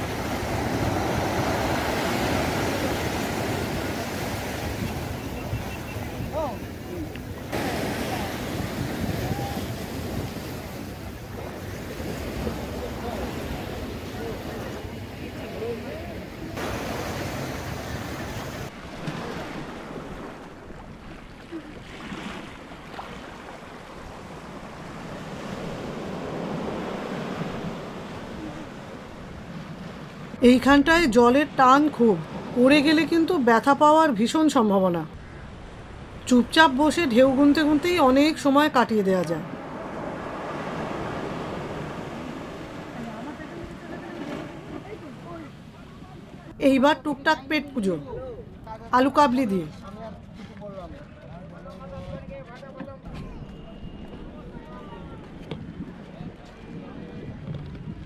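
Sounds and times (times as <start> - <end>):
sea surf washing over sand: 0.0 - 33.9, 35.4 - 46.6
wind on microphone: 51.8 - 58.0.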